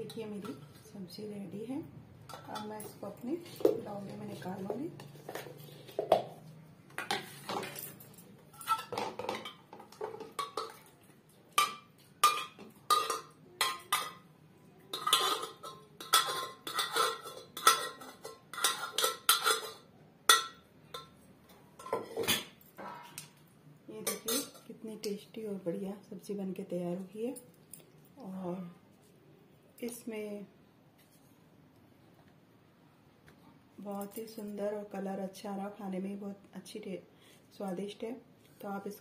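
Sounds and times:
metal spoon scraping a pot: 0:14.8 - 0:21.2.

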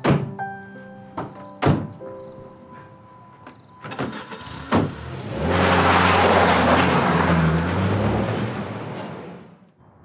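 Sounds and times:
car engine driving off: 0:03.8 - 0:09.6.

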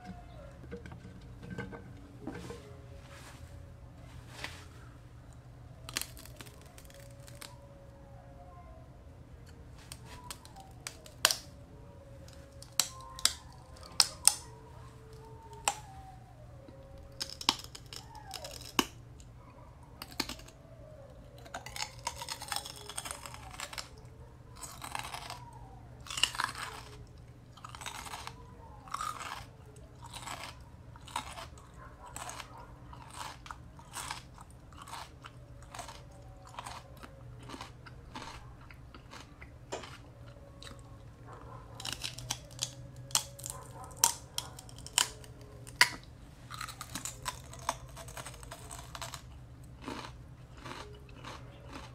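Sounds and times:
wet crunching chews: 0:04.7 - 0:07.6, 0:09.4 - 0:11.6, 0:12.2 - 0:51.9
celery snapping: 0:05.9 - 0:07.6, 0:09.8 - 0:11.5, 0:12.2 - 0:14.5, 0:41.8 - 0:49.2.

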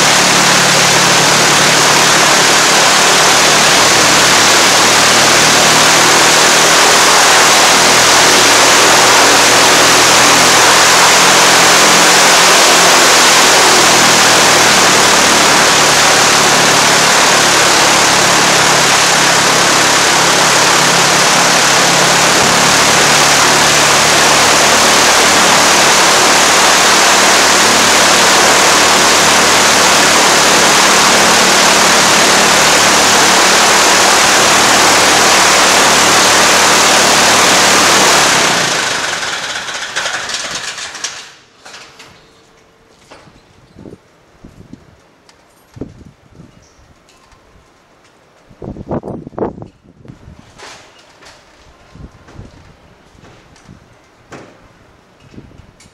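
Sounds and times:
propeller plane engine running: 0:00.0 - 0:43.4.

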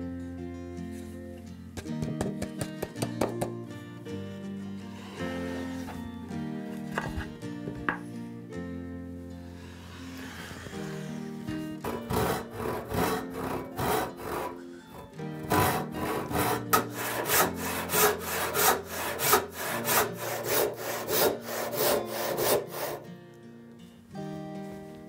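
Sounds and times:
handsaw cutting wood: 0:05.0 - 0:06.0, 0:09.7 - 0:23.1.

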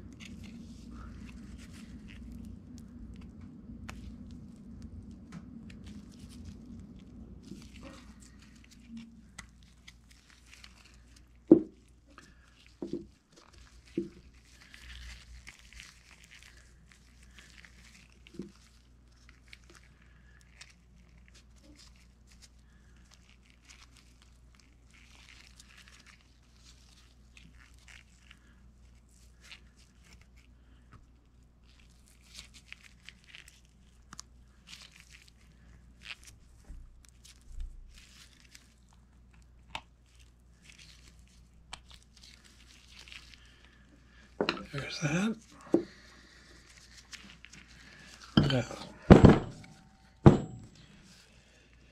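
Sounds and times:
low steady hum: 0:00.0 - 0:23.7, 0:25.9 - 0:51.9
gloves crinkling and rustling: 0:00.0 - 0:51.9
dull knocks on workbench: 0:49.1 - 0:49.7, 0:50.3 - 0:50.6.

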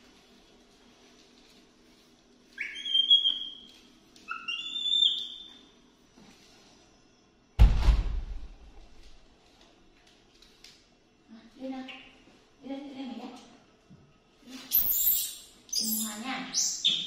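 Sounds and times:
macaque whistle-like calls: 0:02.6 - 0:05.6, 0:14.7 - 0:17.0.

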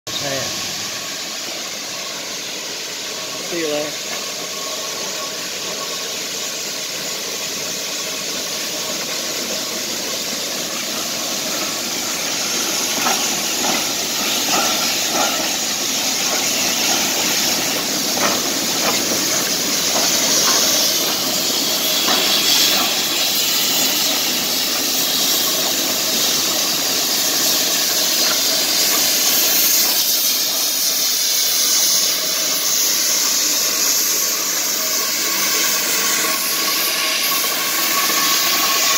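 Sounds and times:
steam hiss: 0:00.1 - 0:38.9.

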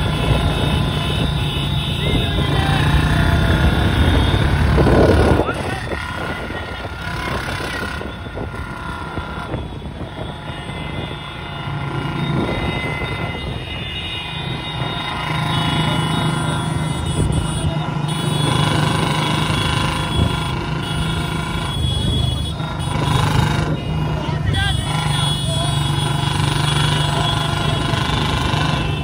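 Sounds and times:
wind noise: 0:00.0 - 0:11.2
motorcycle engines running: 0:00.0 - 0:29.0
road noise: 0:00.0 - 0:29.0.

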